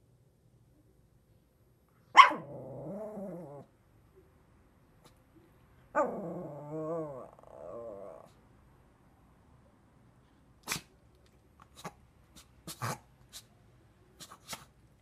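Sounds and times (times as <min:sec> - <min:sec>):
small dog barking and whining: 0:02.1 - 0:03.7, 0:05.9 - 0:08.4.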